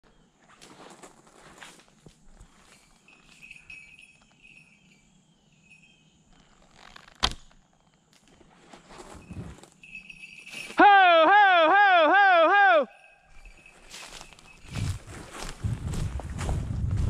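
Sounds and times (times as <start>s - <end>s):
small bell jingling: 2.4s - 6.4s, 9.4s - 11.2s, 12.8s - 15.5s.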